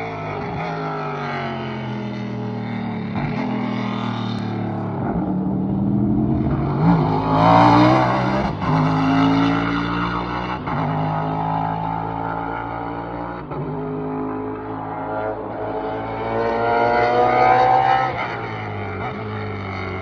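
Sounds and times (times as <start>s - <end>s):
race car engine accelerating: 0.0s - 20.0s.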